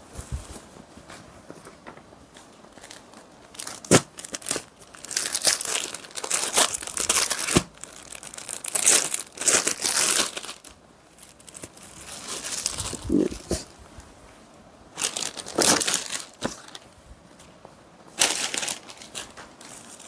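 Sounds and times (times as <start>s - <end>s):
plastic packet crinkling: 2.7s - 13.6s, 15.0s - 16.9s, 18.2s - 20.0s.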